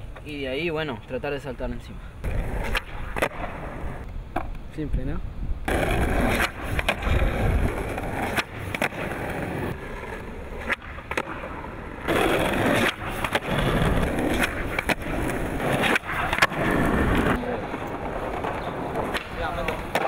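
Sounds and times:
skateboard clacks: 2.2s - 3.5s, 5.7s - 20.0s
skateboard rolling on asphalt: 2.2s - 4.5s, 5.6s - 20.0s.

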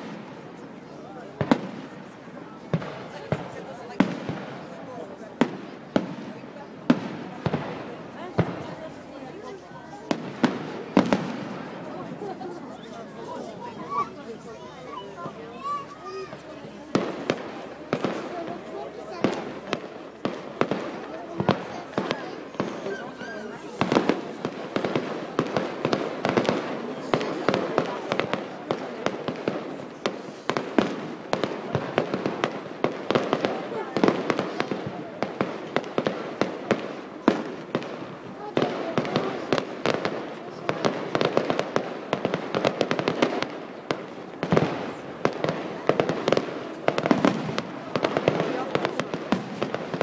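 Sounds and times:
fireworks bursting with bangs and crackles: 0.0s - 50.0s.

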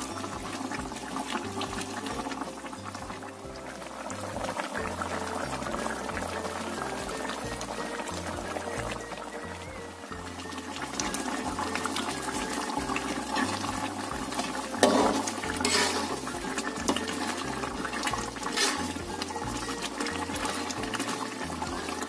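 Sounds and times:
broth bubbling in wok: 0.0s - 22.0s
metal spatula scraping pan: 11.7s - 22.0s.

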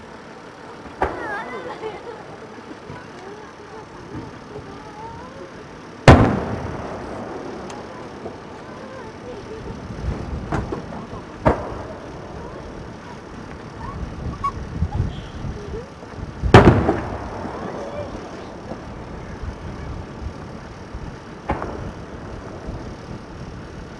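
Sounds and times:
firework shells bursting: 5.8s - 15.0s, 16.4s - 23.9s.

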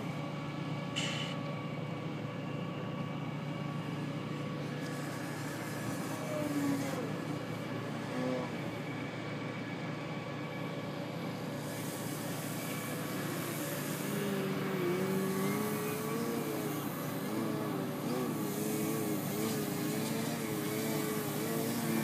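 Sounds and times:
electric model plane motor: 4.8s - 7.2s, 11.8s - 22.0s.

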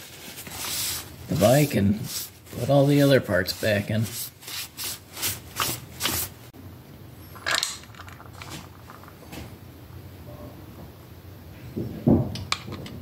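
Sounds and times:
rag wiping metal: 0.0s - 6.4s.

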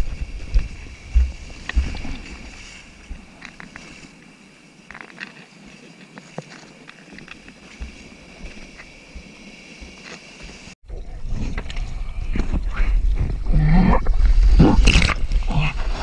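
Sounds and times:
surf sloshing: 0.0s - 4.4s
foam hissing and crackling: 0.0s - 10.8s.

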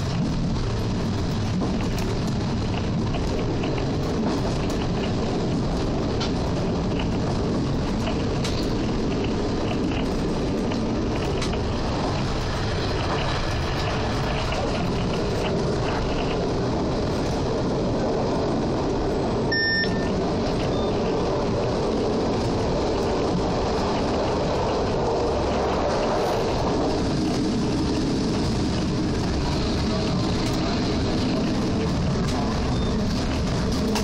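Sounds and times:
train wheels rumbling on rail: 0.0s - 34.0s
short high beep: 19.5s - 20.1s.

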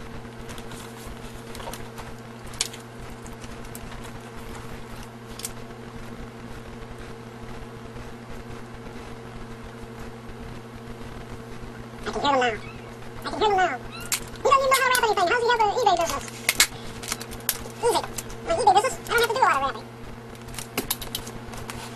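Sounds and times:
low electrical hum: 0.0s - 21.9s.

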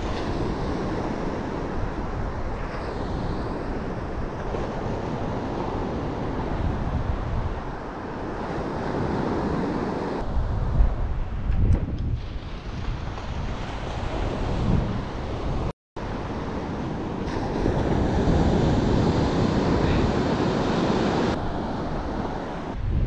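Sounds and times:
wind buffeting microphone: 0.0s - 23.0s
surf breaking on beach: 12.1s - 22.8s.

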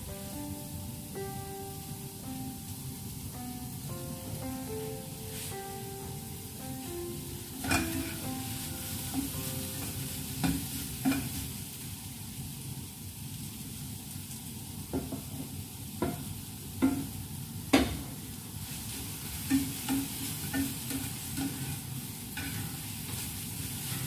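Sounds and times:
onions sizzling in a frying pan: 0.0s - 24.0s
spatula scraping a pan: 7.6s - 11.5s, 18.6s - 24.0s.

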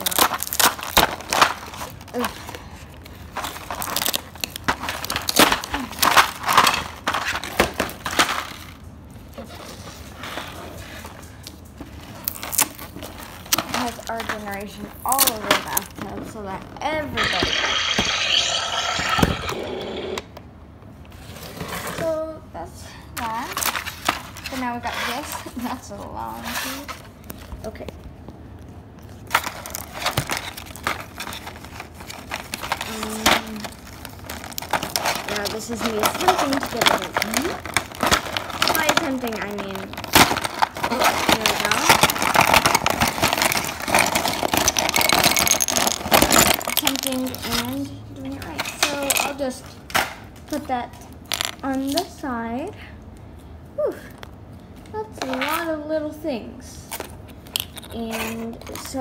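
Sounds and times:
plastic wrapping crinkling: 0.0s - 19.2s, 28.6s - 52.2s, 56.9s - 59.0s.

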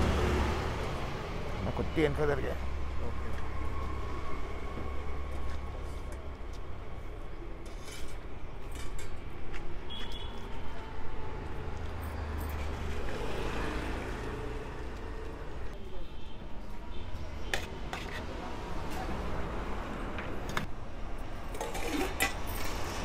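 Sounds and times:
low traffic rumble: 0.0s - 9.6s.

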